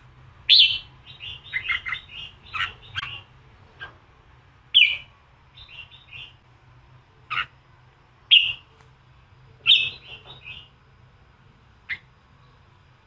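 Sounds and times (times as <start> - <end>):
bird song sharp calls: 0.5 - 3.9, 4.7 - 6.4, 8.3 - 8.7, 9.6 - 10.8.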